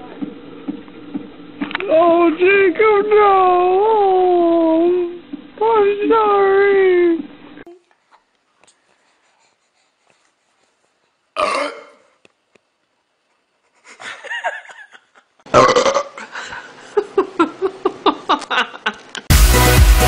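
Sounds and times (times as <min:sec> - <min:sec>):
baby burping: 0:11.4 - 0:12.1, 0:15.5 - 0:16.2
laughter in quick bursts: 0:13.7 - 0:15.4, 0:16.3 - 0:19.3.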